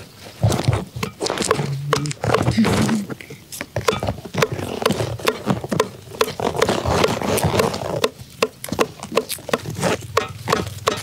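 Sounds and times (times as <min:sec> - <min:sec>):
chili stems snapping: 0:01.0 - 0:02.4.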